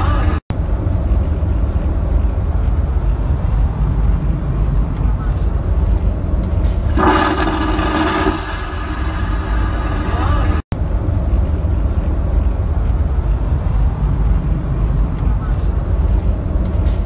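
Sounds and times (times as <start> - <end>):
vacuum toilet flushing: 6.9 - 10.6.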